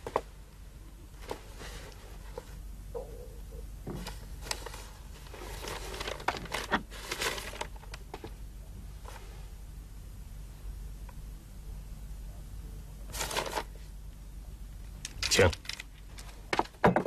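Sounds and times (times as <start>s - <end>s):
faint low hum: 0.0s - 17.0s
paper being handled: 4.0s - 8.3s, 13.1s - 13.9s.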